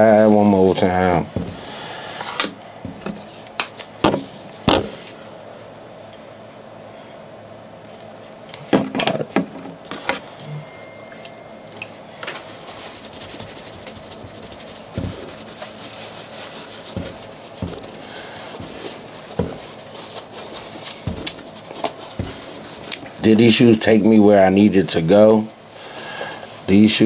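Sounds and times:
brush scrubbing shoe sole: 12.4 - 27.0
dull bumps handling shoe: 14.9 - 15.4, 16.8 - 18.0, 18.6 - 22.8.

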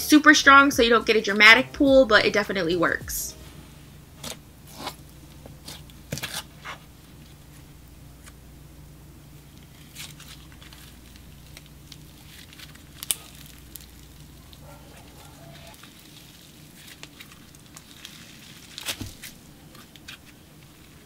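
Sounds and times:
slime clicking and crackling: 9.5 - 21.0
slime popping: 9.8 - 14.6.

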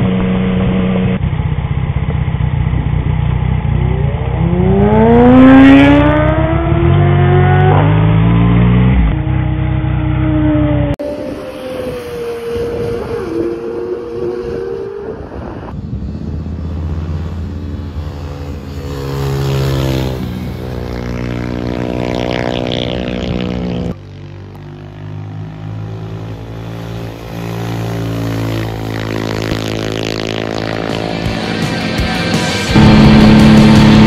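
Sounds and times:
motorcycle engines passing: 2.8 - 34.0.

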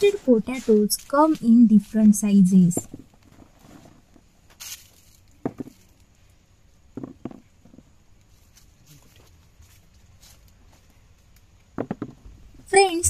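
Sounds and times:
hollow knocks in plastic basin: 5.4 - 5.8, 6.9 - 7.8, 11.8 - 12.3.

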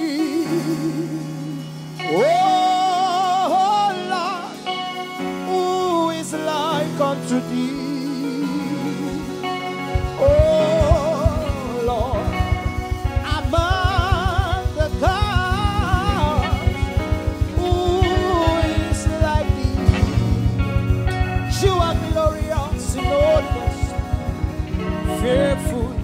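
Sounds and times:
band playing: 0.0 - 26.0
singer with wavering vibrato: 0.0 - 26.0
fast low beat: 9.2 - 26.0.

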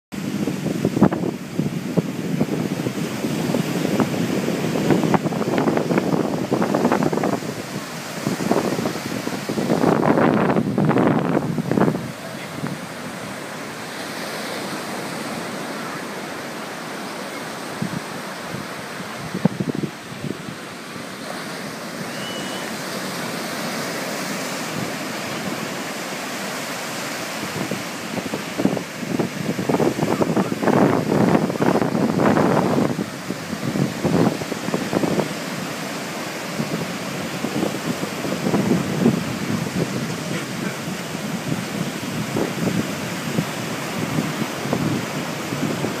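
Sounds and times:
wind buffeting microphone: 0.1 - 46.0
surf breaking on a beach: 0.2 - 46.0
faint high whistle: 22.0 - 22.8.

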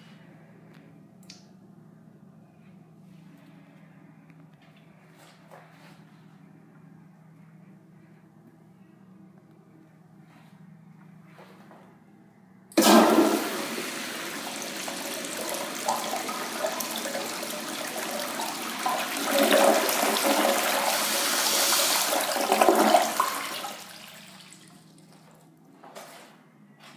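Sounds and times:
toilet flushing rush of water: 12.8 - 24.8.

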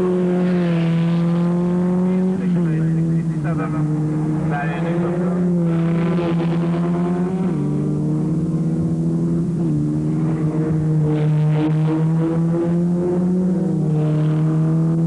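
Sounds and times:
racing car engines passing: 0.0 - 15.0.

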